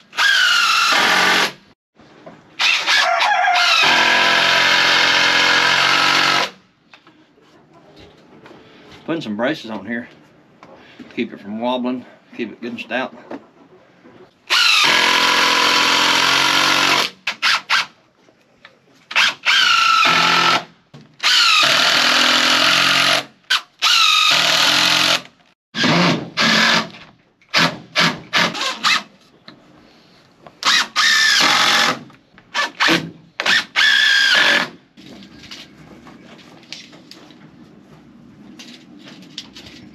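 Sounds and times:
cordless drill driving screws: 0.1 - 1.5, 14.5 - 17.8, 30.6 - 32.0, 32.6 - 34.7.

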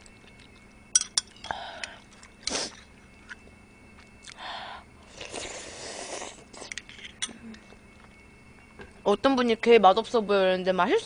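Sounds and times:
person slurping and chewing noodles: 5.0 - 6.9.

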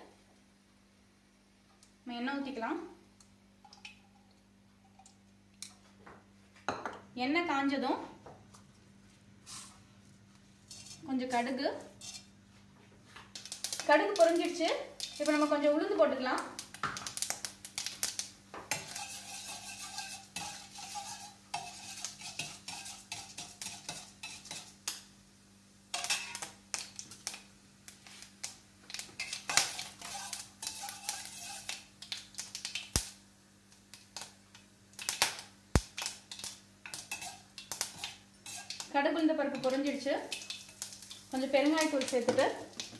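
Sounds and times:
seeds sizzling in hot oil: 9.4 - 12.6, 13.2 - 42.9
metal spoon scraping a pan: 10.7 - 12.3, 15.0 - 15.5, 18.7 - 24.8, 25.9 - 26.5, 29.2 - 32.0, 36.3 - 42.9.

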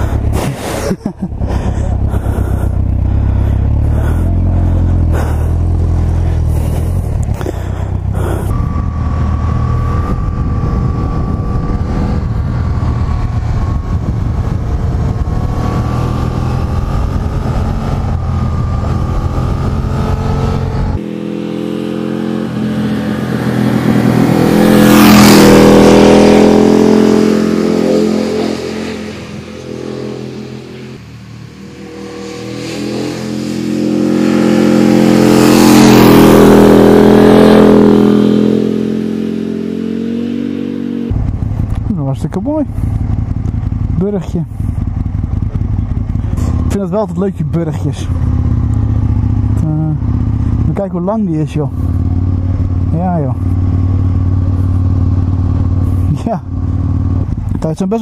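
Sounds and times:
motorcycles passing by: 0.0 - 58.0
onboard motorcycle engine: 0.0 - 58.0
wind noise: 6.6 - 21.0.

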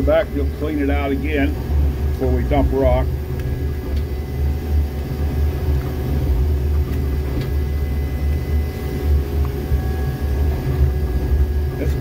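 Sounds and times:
diesel engine droning: 0.0 - 12.0.

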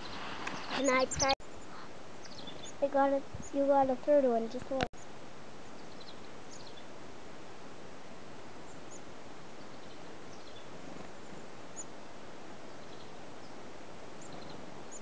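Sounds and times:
chickadees calling: 0.0 - 3.6
outdoor hiss: 0.0 - 15.0.

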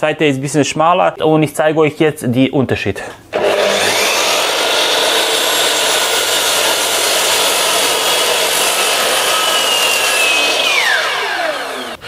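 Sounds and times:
mitre saw whining: 3.3 - 12.0
saw blade cutting wood: 3.4 - 12.0.

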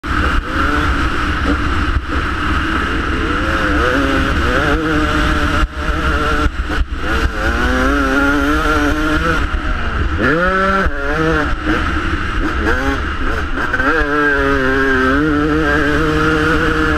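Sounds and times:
dirt bike engine revving: 0.0 - 16.9
wind on microphone: 0.0 - 16.9.

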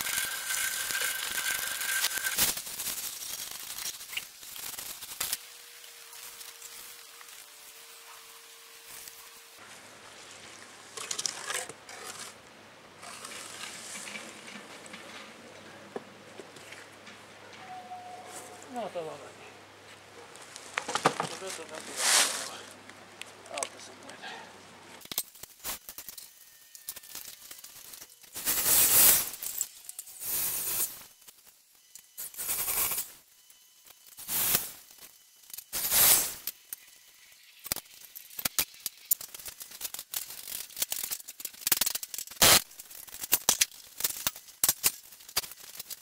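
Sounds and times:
harsh hissing noise bursts: 27.4 - 33.4, 34.0 - 39.4, 42.3 - 42.7.

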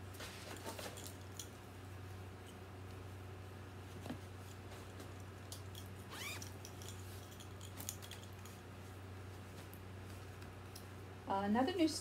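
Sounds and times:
rustling and light clicks: 0.0 - 1.7, 3.8 - 10.9
steady low hum: 0.0 - 12.0.

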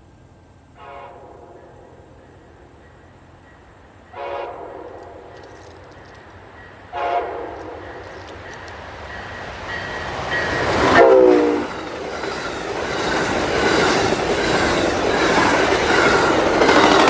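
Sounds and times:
wheels rushing on rails: 0.0 - 17.0
train horn blast: 0.8 - 2.0, 4.1 - 5.3, 6.9 - 8.0, 10.8 - 11.8.

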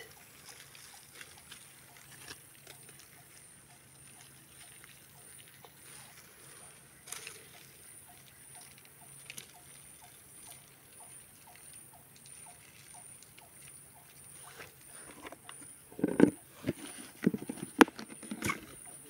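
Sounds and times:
insect chirping: 0.0 - 19.0
rustling in dry leaves: 0.0 - 19.0
soft clicks in leaves: 0.1 - 14.8.

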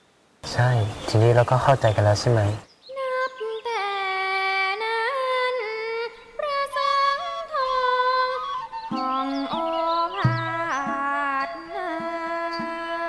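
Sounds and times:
woman singing slow song: 2.8 - 13.0
lower voice singing: 2.9 - 13.0
soft music: 3.8 - 13.0.

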